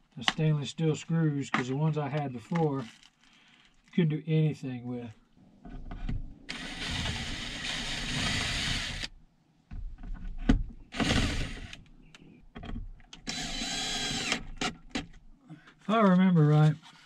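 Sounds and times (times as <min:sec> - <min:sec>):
power drill driving screws: 0:06.5 - 0:09.1, 0:10.9 - 0:11.8, 0:13.2 - 0:14.8.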